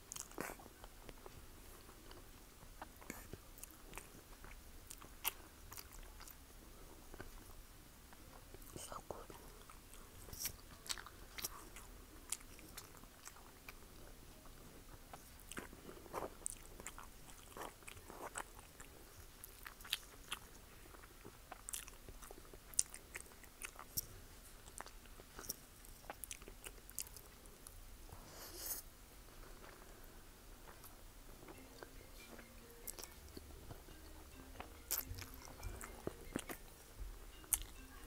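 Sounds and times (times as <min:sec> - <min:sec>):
chewing noodles: 0:00.0 - 0:06.5, 0:08.5 - 0:14.0, 0:14.9 - 0:27.8, 0:31.5 - 0:33.4, 0:34.6 - 0:38.0.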